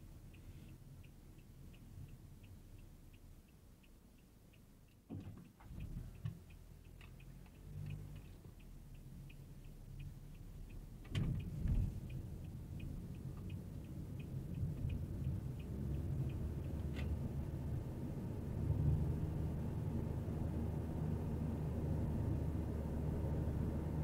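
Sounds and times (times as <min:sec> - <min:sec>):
road and engine rumble: 0:00.0 - 0:24.0
turn signal ticking: 0:00.0 - 0:24.0.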